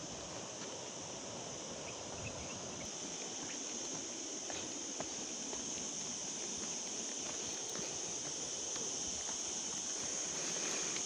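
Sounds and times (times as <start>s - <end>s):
steady high-pitched hiss: 0.0s - 11.0s
footsteps on stony dirt trail: 3.3s - 11.0s.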